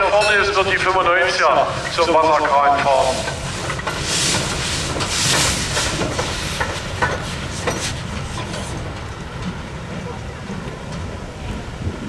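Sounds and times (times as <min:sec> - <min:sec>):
steam locomotive hissing puffs: 0:01.4 - 0:09.4.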